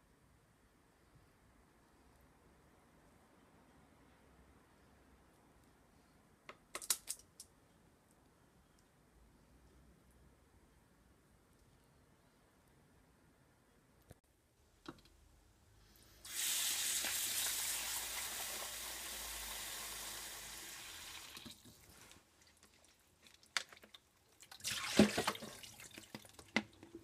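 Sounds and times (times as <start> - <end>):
tap water running: 16.3 - 21.9, 24.4 - 27.0.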